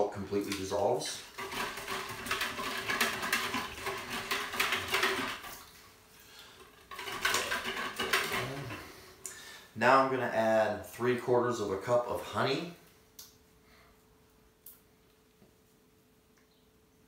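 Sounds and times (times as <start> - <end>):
utensil scraping plastic bucket: 0.4 - 5.7, 6.6 - 9.0.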